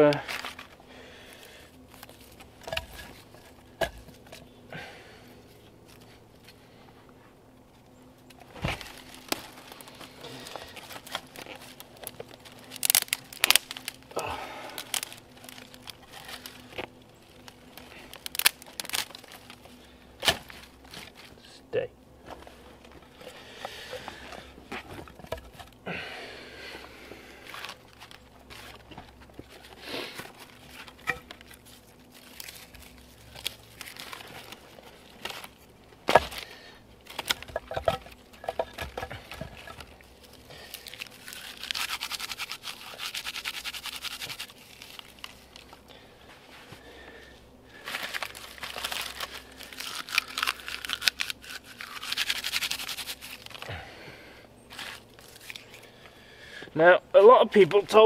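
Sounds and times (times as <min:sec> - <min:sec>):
bark crackling and tearing: 0:08.2 - 0:21.4, 0:27.4 - 0:46.0, 0:47.7 - 0:53.8, 0:54.7 - 0:56.0.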